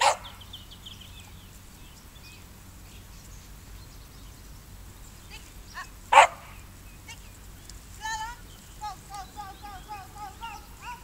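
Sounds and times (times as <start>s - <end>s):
dog barking: 0.0s - 0.4s, 6.1s - 6.6s
dog yipping: 0.0s - 0.4s, 6.1s - 6.5s.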